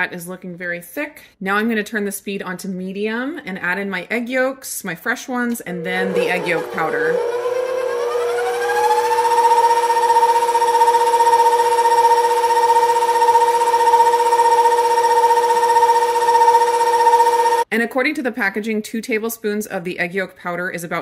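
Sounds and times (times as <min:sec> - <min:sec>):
stand mixer motor whine: 0:05.6 - 0:17.7.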